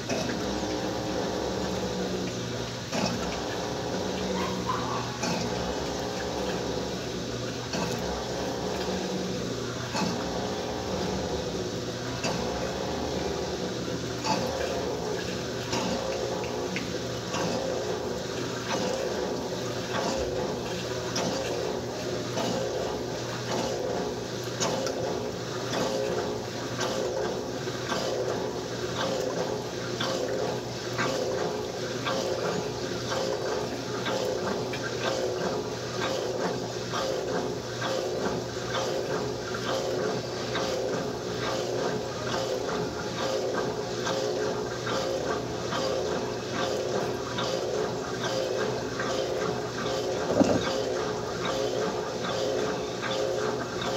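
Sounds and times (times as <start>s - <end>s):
washing machine motor hum: 0.0s - 53.9s
water sloshing: 12.1s - 53.9s.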